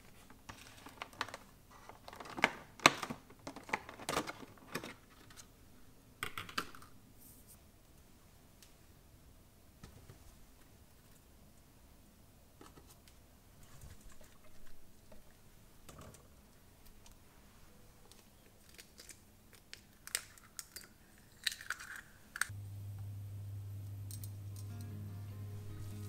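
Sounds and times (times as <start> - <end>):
steady low hum: 22.5 - 26.0.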